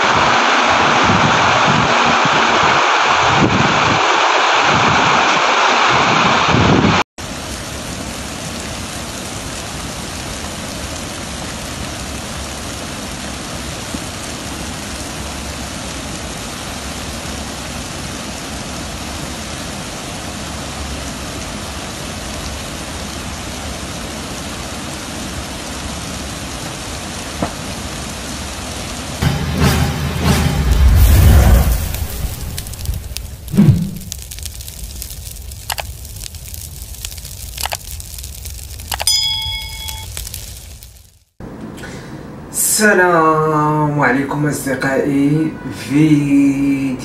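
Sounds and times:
floodwater cascading down a wall: 0.0s - 6.5s, 7.2s - 29.8s, 30.5s - 41.4s
wind buffeting microphone: 0.0s - 7.0s.

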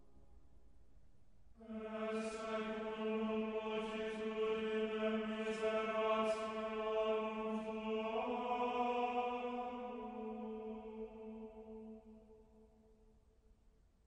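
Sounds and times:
voices chanting a drone: 1.6s - 12.4s.

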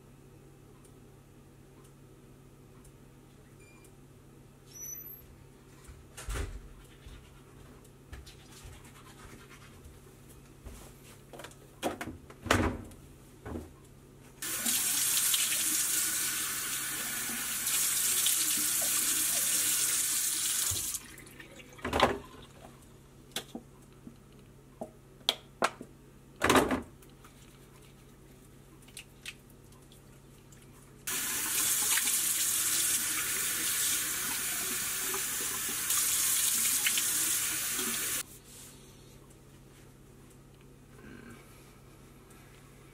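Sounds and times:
tap water running into basin: 14.4s - 22.0s, 31.1s - 38.2s.

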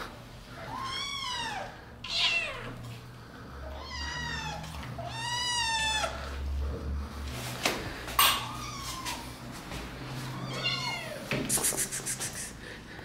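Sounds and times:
cats meowing: 0.5s - 2.9s, 3.6s - 6.5s, 8.2s - 11.3s.

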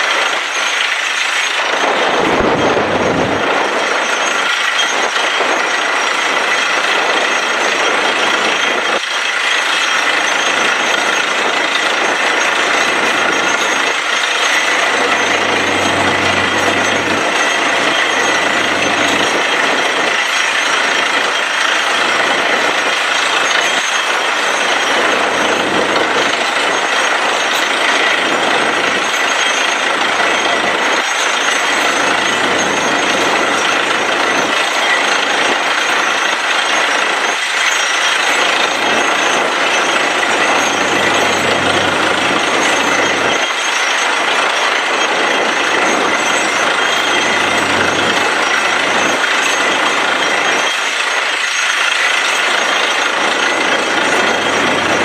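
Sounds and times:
drilling rig running: 0.0s - 55.0s.

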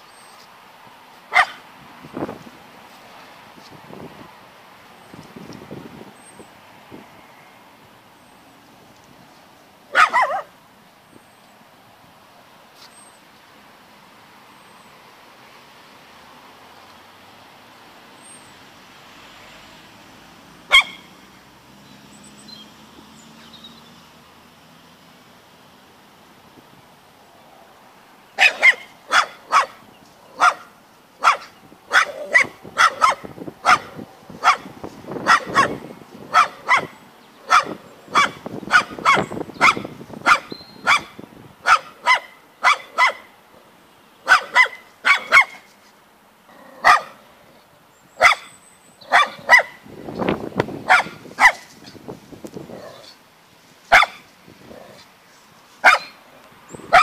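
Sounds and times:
dog barking: 1.3s - 1.6s, 9.9s - 10.5s, 20.7s - 21.1s, 28.4s - 29.8s, 30.4s - 43.3s, 44.2s - 45.6s, 46.8s - 47.2s, 48.2s - 48.5s, 49.1s - 49.8s, 50.9s - 51.7s, 53.9s - 54.2s, 55.8s - 56.2s.

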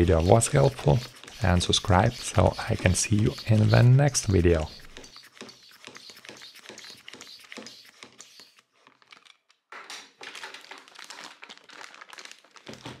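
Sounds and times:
plastic bag crinkling: 8.8s - 13.0s.

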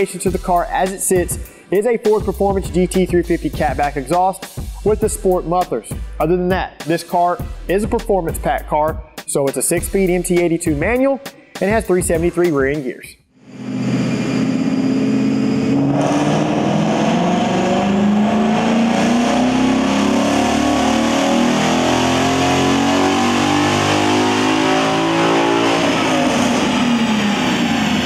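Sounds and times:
car engine revving at full throttle: 13.4s - 28.0s.

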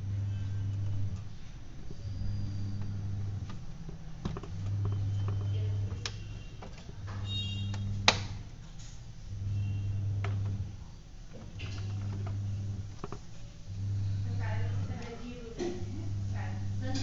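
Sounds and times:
low hum: 0.0s - 17.0s
plastic clicks and scraping: 2.7s - 9.0s, 11.3s - 13.5s.

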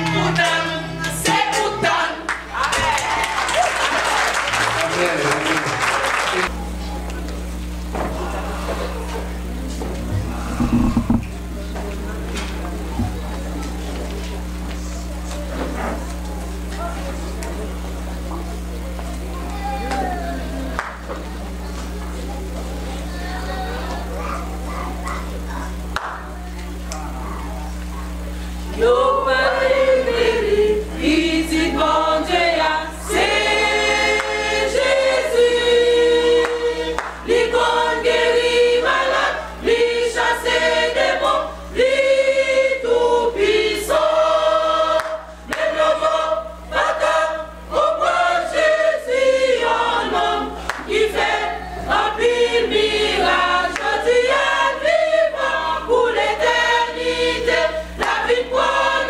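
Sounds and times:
women's choir singing: 0.0s - 3.1s, 28.7s - 59.0s
low electrical hum: 0.0s - 59.0s.

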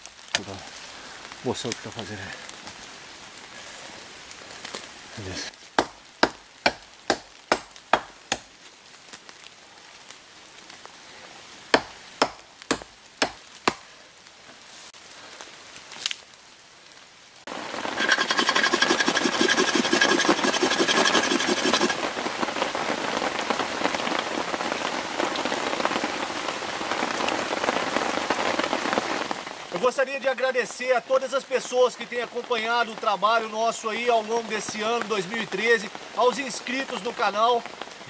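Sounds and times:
loud steady rain: 0.0s - 18.0s, 19.5s - 38.0s
knife chopping into wood: 5.8s - 8.5s, 11.8s - 13.8s.

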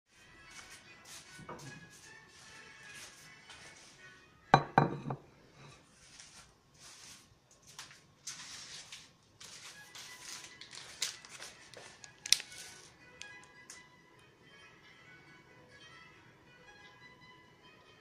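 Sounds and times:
ceramic plate clattering on table: 4.6s - 5.2s
plastic snack packet rustling: 8.2s - 13.7s.

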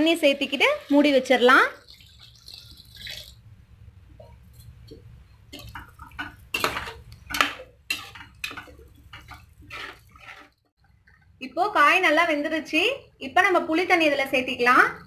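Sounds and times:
ladle stirring and scraping a pan: 0.0s - 3.4s, 4.1s - 11.3s
water poured into a pan: 0.0s - 3.4s.

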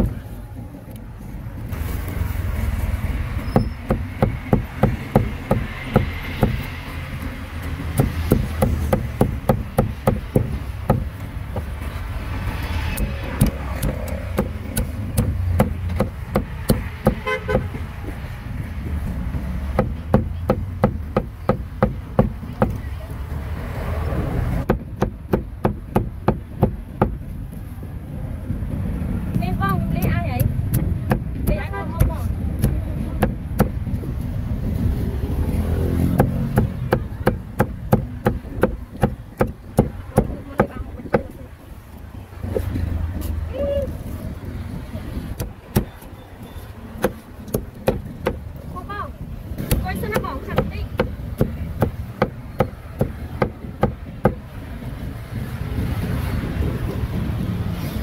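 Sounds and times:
cleaver chopping meat: 7.8s - 11.1s, 30.0s - 33.8s, 36.0s - 41.3s, 45.4s - 46.1s, 47.0s - 48.4s, 49.6s - 54.4s.

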